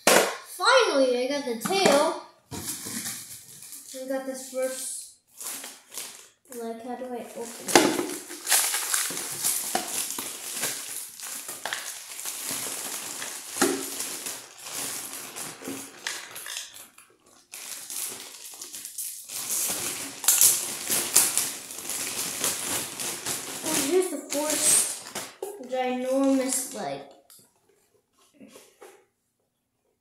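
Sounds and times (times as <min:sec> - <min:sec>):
packaging scraping and tearing: 0:07.4 - 0:25.3.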